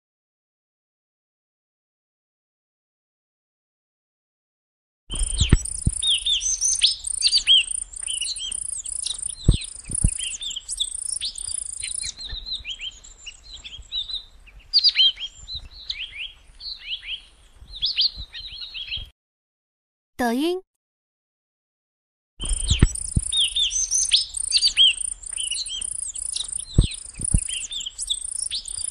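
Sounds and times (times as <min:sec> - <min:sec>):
songbirds chirping: 0:05.2 - 0:19.1, 0:22.4 - 0:28.9.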